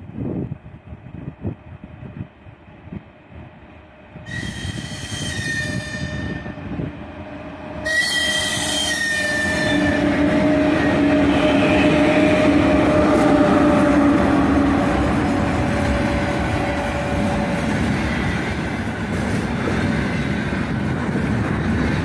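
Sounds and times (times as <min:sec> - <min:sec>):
locomotive hum: 0:00.0 - 0:22.0
train wheels rumbling: 0:00.0 - 0:22.0
locomotive whistle blasts: 0:04.3 - 0:06.6, 0:07.8 - 0:10.7.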